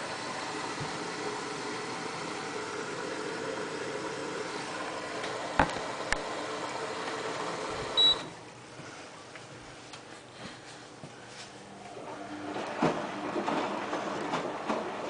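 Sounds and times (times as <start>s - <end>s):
washing machine humming: 0.0s - 15.0s
short high beep: 8.0s - 8.3s.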